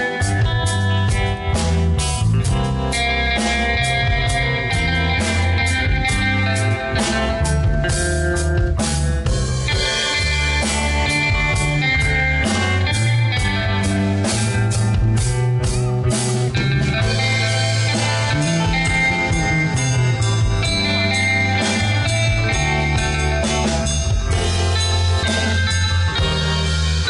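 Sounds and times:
instrumental rock music: 0.0 - 27.0.

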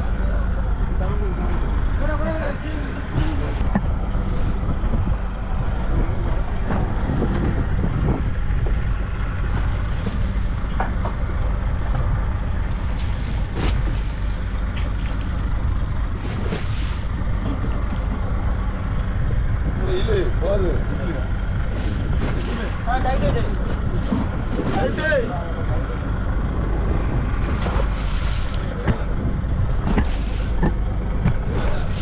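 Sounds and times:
boat engine running: 0.0 - 32.0
wind on microphone: 3.1 - 20.0.

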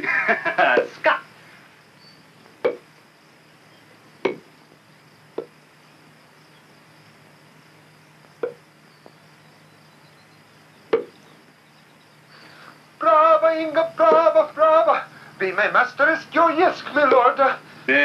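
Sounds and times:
faint film soundtrack hum: 0.0 - 18.0
racquets hitting shuttlecock: 0.7 - 1.0, 2.6 - 2.8, 4.2 - 4.5.

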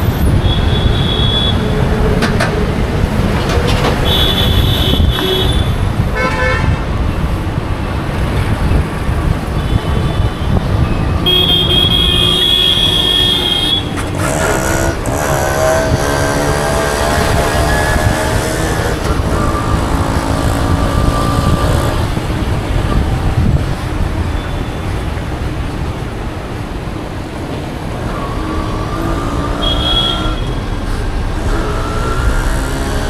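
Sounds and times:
traffic rumble: 0.0 - 33.0
vehicle horns honking: 0.1 - 2.0, 4.0 - 6.8, 9.5 - 16.7, 29.3 - 30.8.

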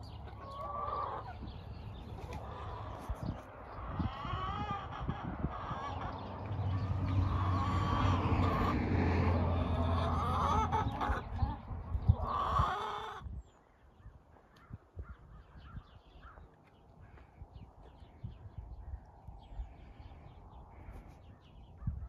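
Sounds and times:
flock of birds calling: 0.0 - 13.3.

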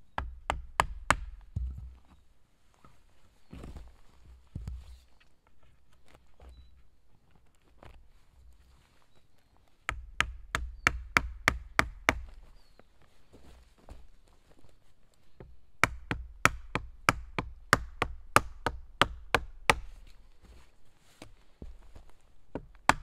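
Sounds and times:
wooden mallet striking wooden peg: 0.2 - 1.9, 9.9 - 12.3, 15.8 - 19.9, 22.6 - 23.0.

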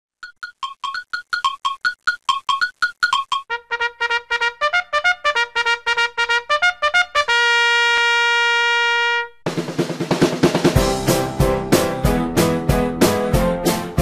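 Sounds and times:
brass melody: 3.5 - 9.8, 10.6 - 14.0
drums and full band: 9.5 - 14.0.

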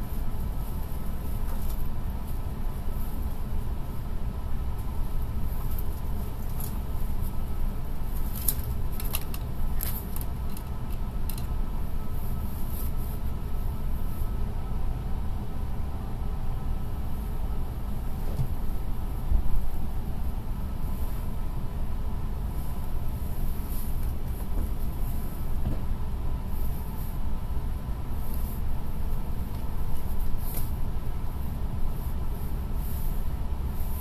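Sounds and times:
train equipment rumble and hum: 0.0 - 34.0.

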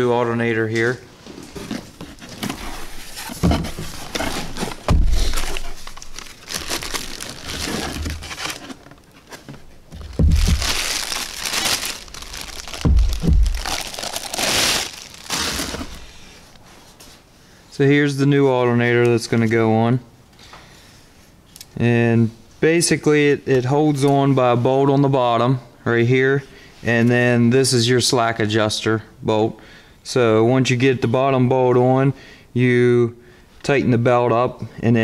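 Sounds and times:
dull thumps: 1.7 - 8.8, 9.4 - 16.1
plastic bag crinkling: 2.1 - 16.4.

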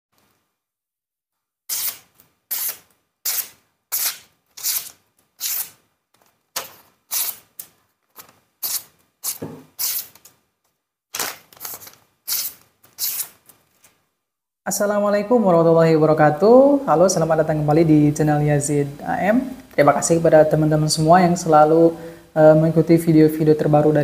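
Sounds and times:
blade slicing through paper: 1.7 - 5.8, 6.5 - 10.4, 11.1 - 13.6.

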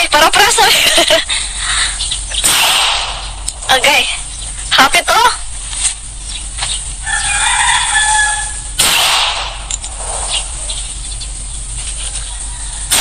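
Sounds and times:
pistol shot: 2.4 - 3.4, 8.8 - 9.8
rooster crowing: 7.0 - 8.8, 12.0 - 13.0.

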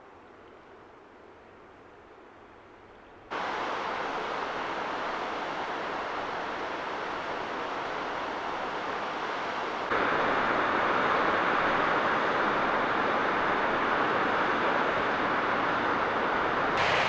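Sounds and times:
waterfall rushing: 16.8 - 17.0.

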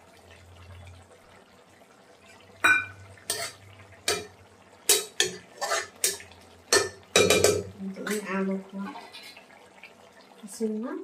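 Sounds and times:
metal spoon clinking against pan: 4.9 - 8.2.

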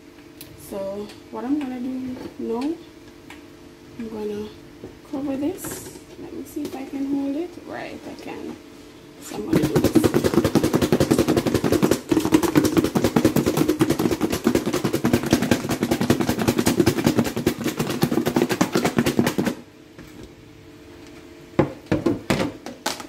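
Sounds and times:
knocks on plastic: 9.4 - 19.6.

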